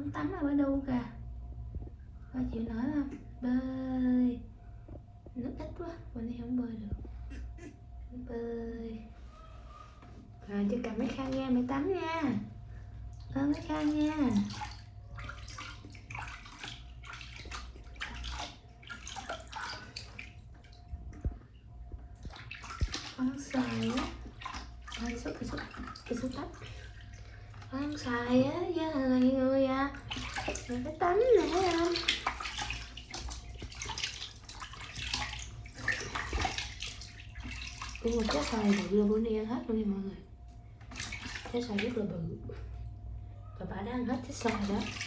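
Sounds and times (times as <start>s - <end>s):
water splashing in plastic tub: 10.5s - 21.5s, 22.1s - 39.5s, 40.8s - 42.9s, 44.0s - 45.0s.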